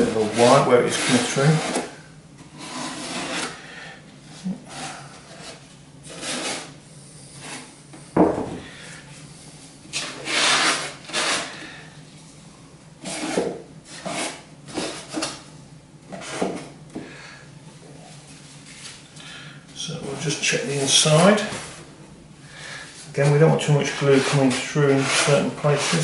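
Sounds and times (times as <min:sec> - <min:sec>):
kitchen roll wiping foam: 0:00.0 - 0:01.9, 0:23.0 - 0:26.0
dull knock: 0:08.2 - 0:08.7.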